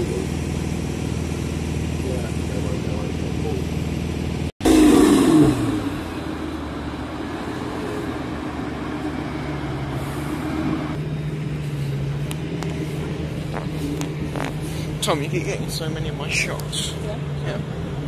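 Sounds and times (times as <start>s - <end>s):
sports car exhaust pulling away: 0.0s - 18.0s
car engine passing close by: 4.6s - 18.0s.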